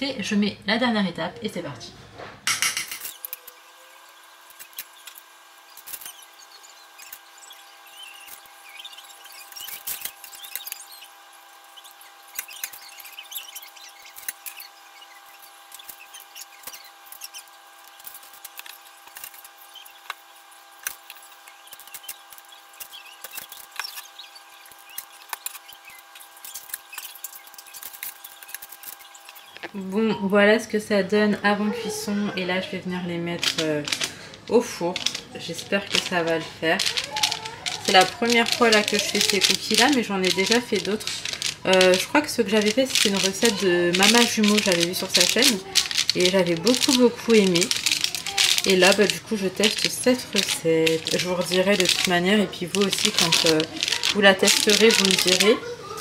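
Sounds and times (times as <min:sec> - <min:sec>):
metal spoons scraping and tapping: 0:02.5 - 0:03.5, 0:33.4 - 0:55.6.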